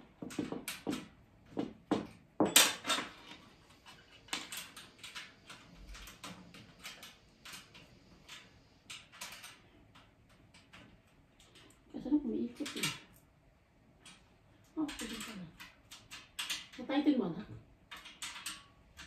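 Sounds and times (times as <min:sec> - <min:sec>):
metal trolley clinks and knocks: 0:00.2 - 0:03.4.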